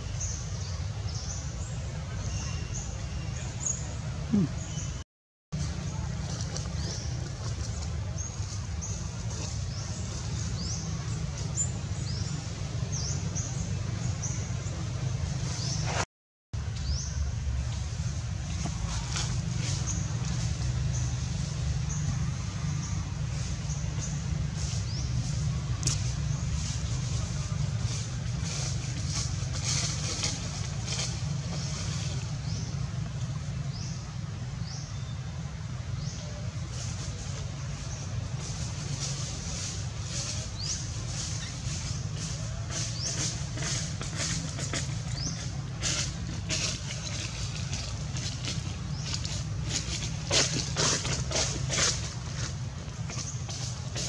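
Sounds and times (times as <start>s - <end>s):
steady low rumble: 16.6s - 54.0s.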